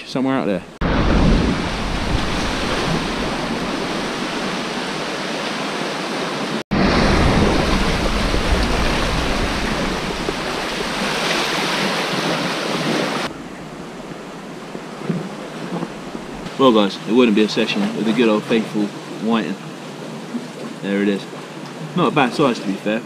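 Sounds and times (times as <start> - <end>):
wind buffeting microphone: 0.8 - 5.4, 6.7 - 16.5
sea waves breaking: 0.8 - 23.0.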